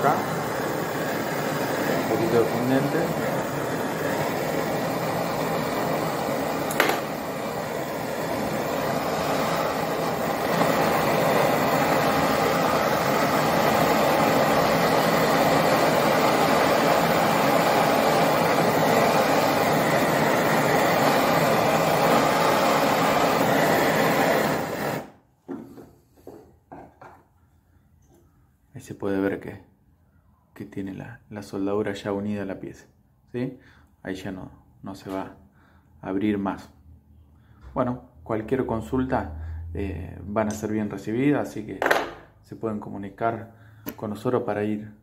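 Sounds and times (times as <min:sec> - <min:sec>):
torch flame burning: 0:00.0 - 0:27.2.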